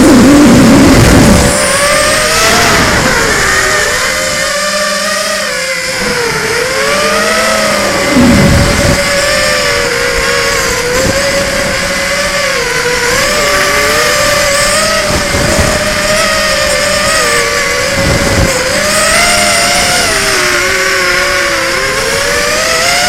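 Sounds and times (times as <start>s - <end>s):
drone motors whining: 0.0s - 23.0s
short low rumbles: 8.1s - 9.1s.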